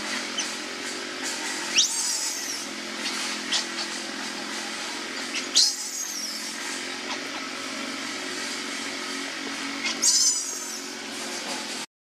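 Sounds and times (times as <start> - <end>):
low mechanical drone: 0.0 - 11.9
baby monkey squealing: 0.3 - 0.6, 1.6 - 4.0, 5.2 - 7.6, 9.8 - 11.0.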